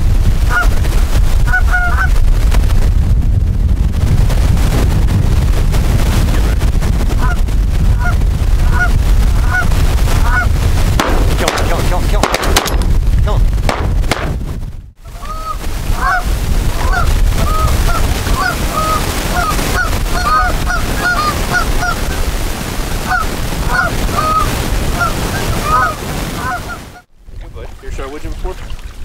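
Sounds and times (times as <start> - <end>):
wind rumble on microphone: 0.0 - 29.0
geese honking: 1.5 - 2.1, 7.2 - 7.4, 8.0 - 11.9, 15.0 - 22.2, 23.0 - 27.1.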